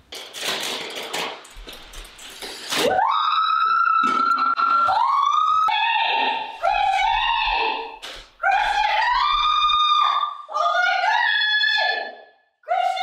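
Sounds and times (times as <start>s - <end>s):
girls screaming: 2.8s - 8.0s.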